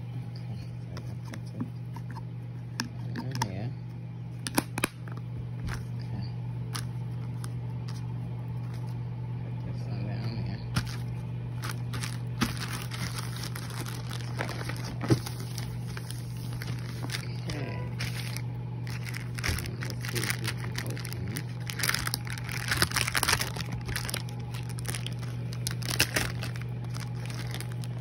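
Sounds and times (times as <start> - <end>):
steady low hum: 0.0 - 28.0
plastic lid snapping shut: 4.4 - 5.2
packaging crinkling and clicking: 4.4 - 5.8, 10.7 - 28.0.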